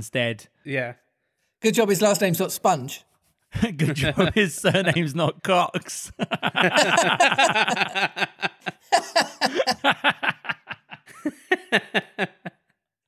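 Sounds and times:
men laughing hard: 4.0s - 5.1s, 6.0s - 12.7s.

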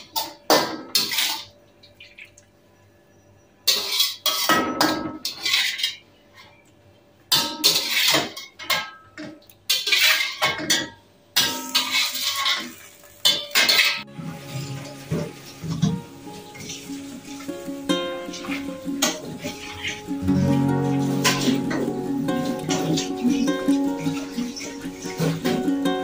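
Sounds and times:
metal spatula scraping a wok: 3.7s - 6.0s, 7.6s - 8.5s, 9.7s - 10.4s, 11.6s - 12.8s.

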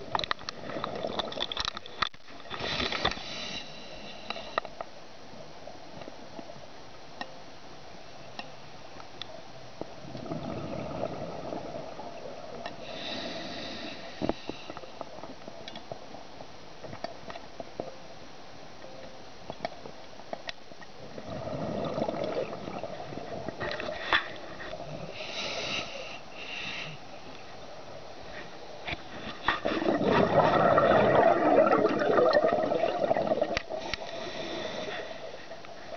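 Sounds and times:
regulator exhaust bubbles underwater: 10.0s - 12.4s, 21.1s - 23.7s, 29.9s - 33.8s.

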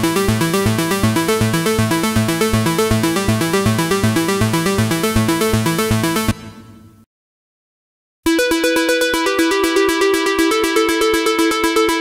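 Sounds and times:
pulsing synth bass: 0.0s - 6.5s
fast arpeggiated synth notes: 8.3s - 12.0s.

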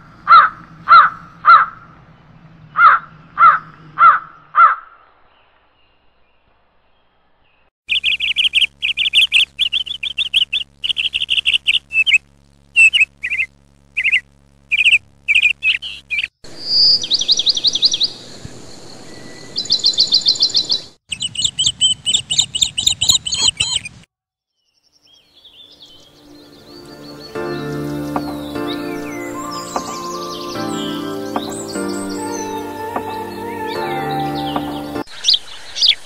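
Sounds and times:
songbirds chirping: 0.0s - 24.0s, 24.6s - 36.0s
high fast bird trills: 7.9s - 18.1s, 27.0s - 35.4s
rapid high twittering: 7.9s - 24.1s, 25.8s - 36.0s.

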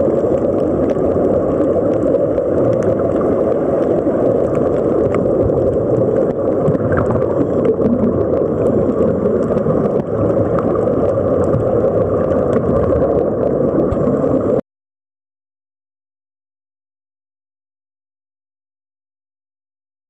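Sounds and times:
underwater rumble and gurgle: 0.0s - 14.6s
faint clicks: 0.2s - 14.4s.

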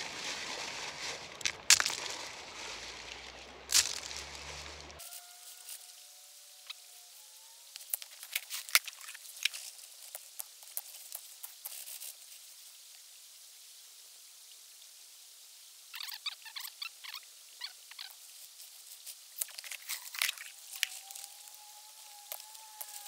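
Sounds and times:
stones clacking in plastic screen: 1.0s - 2.4s, 19.4s - 21.4s.

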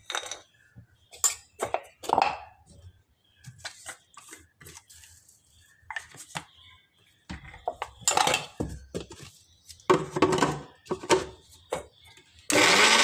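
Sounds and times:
kitchen utensils clicking and knocking: 0.0s - 0.5s, 7.4s - 9.2s, 9.9s - 11.8s.

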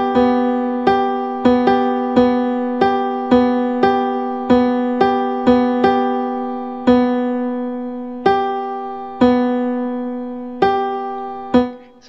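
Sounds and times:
piano notes ringing: 0.0s - 12.0s.

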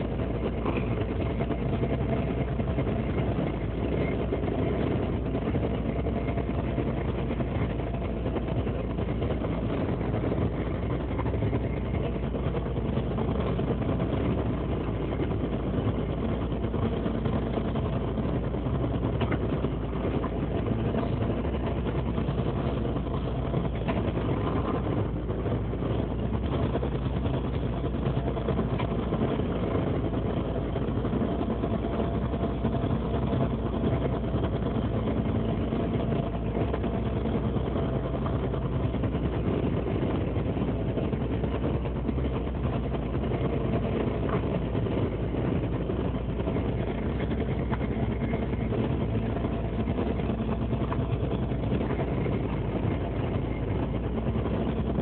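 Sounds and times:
boat engine and machinery hum: 0.0s - 55.0s.

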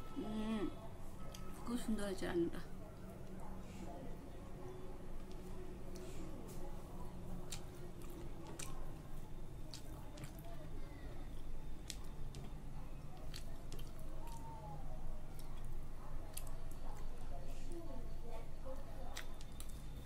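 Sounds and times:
steady low hum: 0.0s - 20.0s
fingers squishing food: 5.0s - 17.3s, 18.8s - 20.0s
wet chewing: 5.0s - 20.0s.

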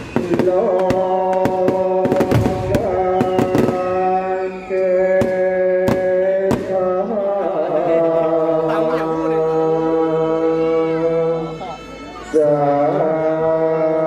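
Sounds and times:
fireworks banging: 0.0s - 7.1s.

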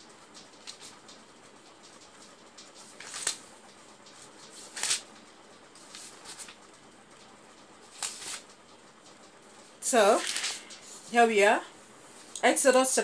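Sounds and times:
book pages turning: 2.6s - 3.5s, 4.1s - 5.1s, 5.8s - 6.6s, 7.9s - 8.5s, 10.1s - 11.1s.

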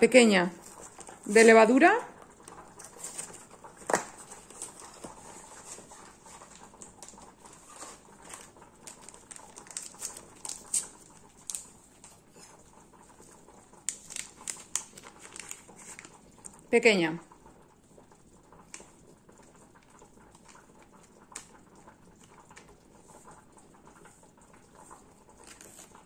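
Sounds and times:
packet being opened by hand: 6.6s - 12.2s, 13.8s - 16.2s.

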